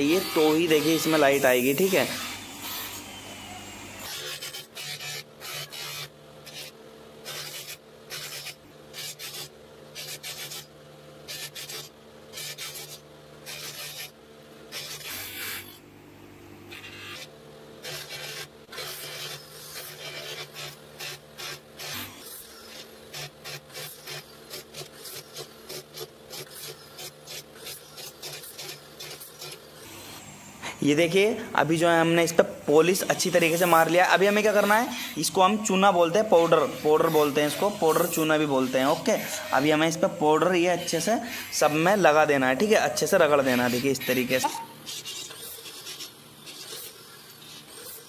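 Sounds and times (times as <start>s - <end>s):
metal rasping on buffing wheel: 0.0s - 2.9s, 32.8s - 48.0s
electric motor hum: 0.0s - 48.0s.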